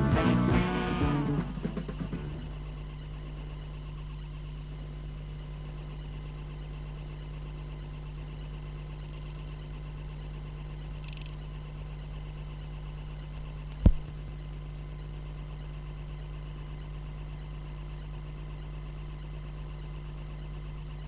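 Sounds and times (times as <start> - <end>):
low electrical hum with hiss: 0.0 - 21.0
loud pop: 13.8 - 14.1.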